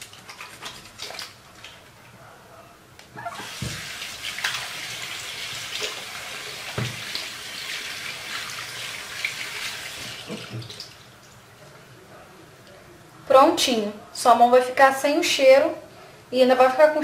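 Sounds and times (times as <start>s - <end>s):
tap water running: 3.2s - 11.4s.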